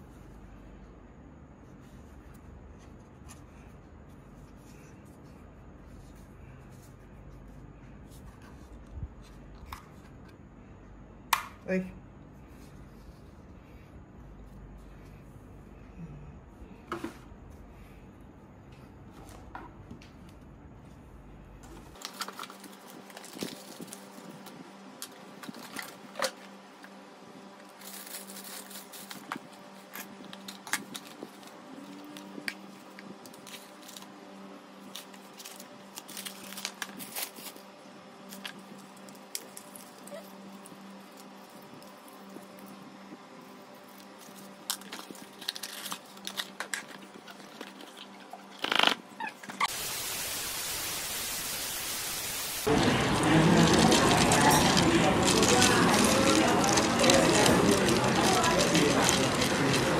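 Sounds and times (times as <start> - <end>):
cardboard packaging handling: 21.9 - 24.5, 52.6 - 59.9
plastic bag crinkling: 27.6 - 34.1, 34.9 - 37.7, 43.8 - 48.1, 52.6 - 59.9.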